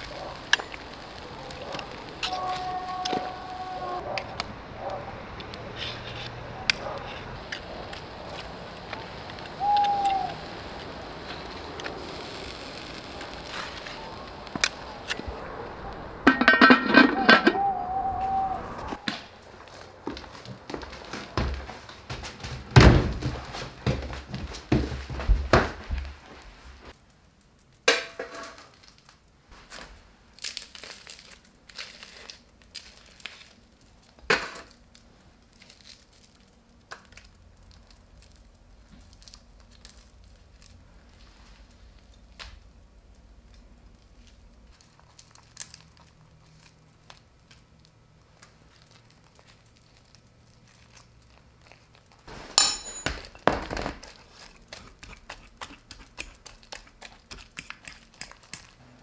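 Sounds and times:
crinkling and crackling: 0.0 - 59.0
sharp taps and clinks: 52.6 - 53.4.

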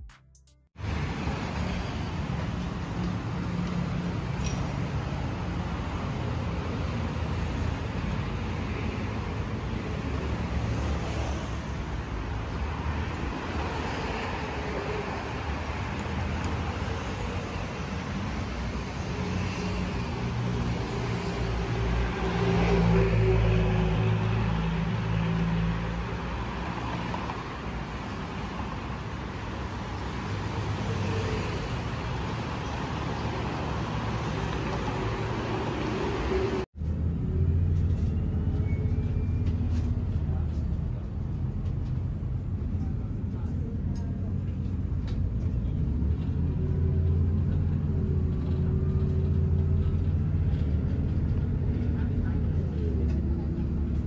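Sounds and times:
road traffic rumble: 0.0 - 54.0.

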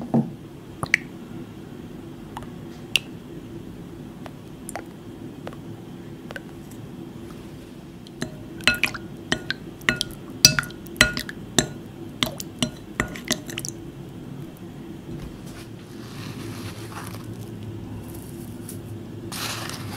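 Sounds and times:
steady low hum: 0.0 - 19.9
spoon clinking in glass bowl: 8.1 - 13.6.

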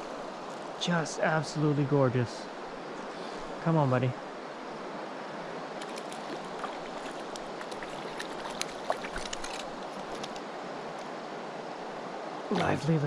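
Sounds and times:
river current rushing: 0.0 - 13.0
small splashes and clicks: 5.8 - 11.1.

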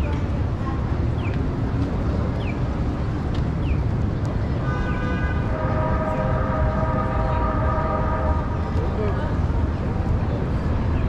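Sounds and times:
low traffic rumble: 0.0 - 11.0
train whine: 5.4 - 10.9.

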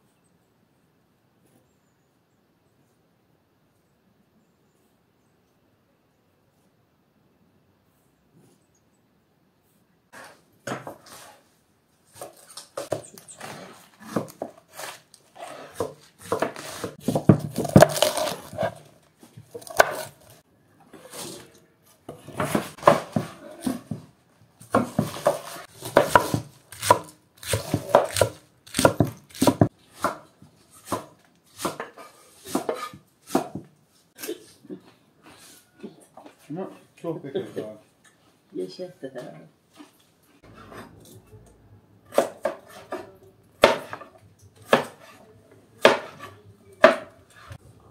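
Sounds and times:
knife chopping on wooden board: 15.7 - 18.8, 19.5 - 20.3, 24.7 - 33.7, 42.1 - 45.2, 45.8 - 47.6.

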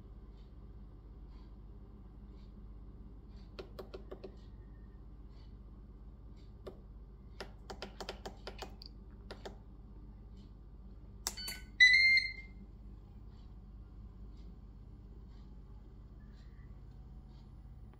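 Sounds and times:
short electronic beep: 11.3 - 12.5.

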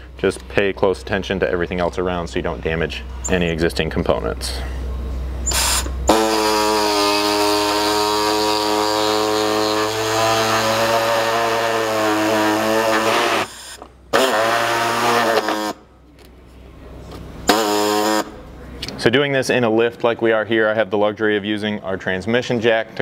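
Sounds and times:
pneumatic air saw buzzing: 5.4 - 15.9, 17.4 - 18.5.

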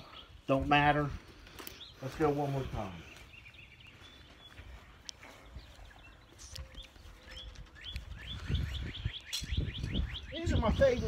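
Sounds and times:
small bird chirping: 3.0 - 11.0.

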